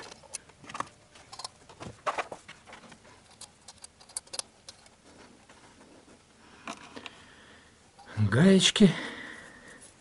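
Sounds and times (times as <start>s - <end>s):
metallic clicks of nuts and washers: 1.3s - 1.6s, 3.2s - 4.9s.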